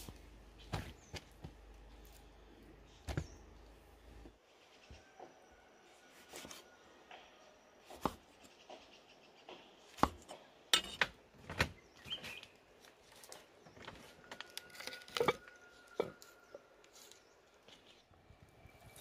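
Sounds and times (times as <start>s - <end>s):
pot clattering on stones: 14.7s - 16.2s.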